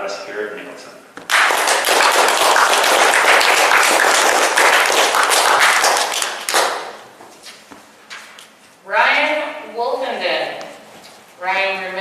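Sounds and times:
audience applauding: 0:01.3 - 0:07.0.

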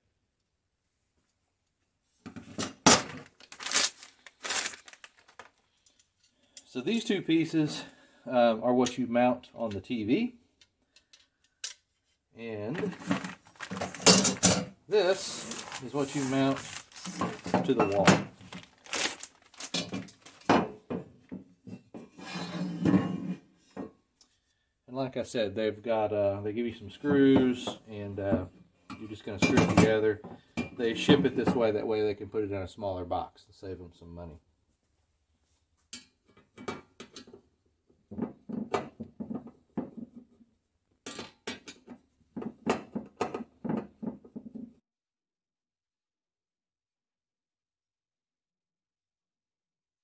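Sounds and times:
plastic packaging rustling: 0:03.1 - 0:05.9, 0:12.8 - 0:14.4, 0:15.1 - 0:20.6.

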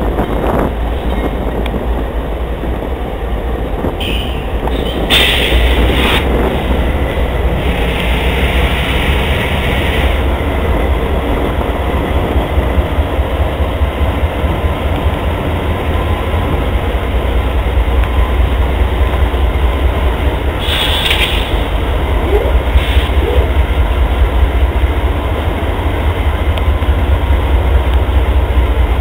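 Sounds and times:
locomotive engine rumble: 0:00.0 - 0:29.0
wheels on rails: 0:00.0 - 0:29.0
rushing hiss: 0:05.1 - 0:06.3, 0:20.5 - 0:21.9, 0:22.7 - 0:23.2.

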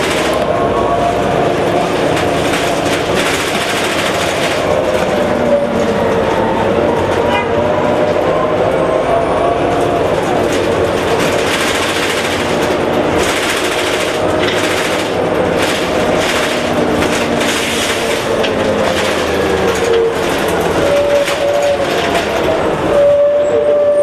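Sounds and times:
bus body rattling: 0:00.0 - 0:23.8
bus transmission whine: 0:00.0 - 0:24.0.

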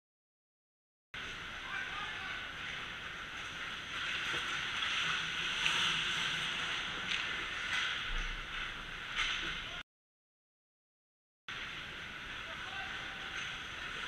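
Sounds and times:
skates scraping on ice: 0:03.4 - 0:09.5.

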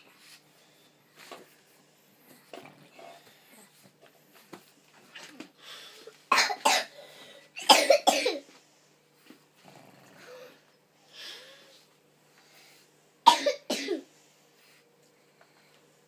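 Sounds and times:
dog coughing: 0:06.3 - 0:07.0, 0:07.6 - 0:08.4, 0:13.2 - 0:14.1.

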